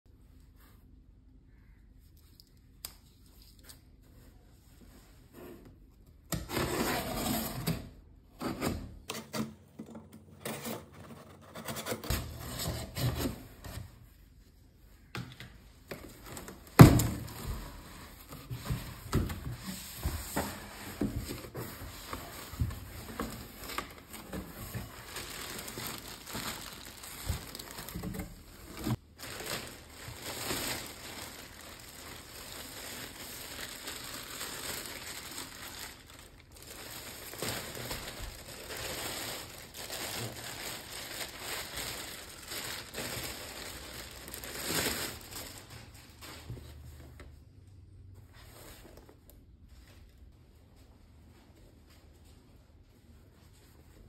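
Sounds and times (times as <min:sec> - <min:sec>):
plastic wrapping crinkling: 0:15.9 - 0:46.7.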